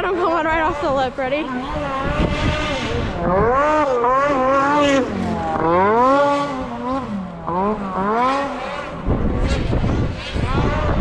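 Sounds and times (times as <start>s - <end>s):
snowmobile engine revving: 0.0s - 11.0s.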